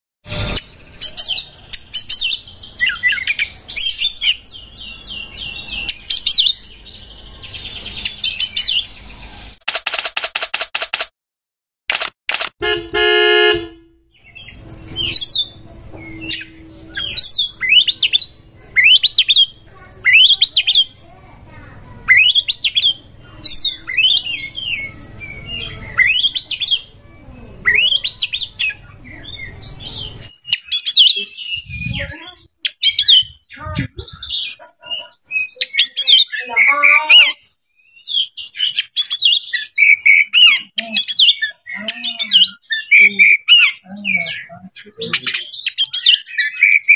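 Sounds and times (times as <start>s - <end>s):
songbird whistling and warbling: 14.1s - 21.1s, 22.1s - 27.0s, 27.6s - 46.9s.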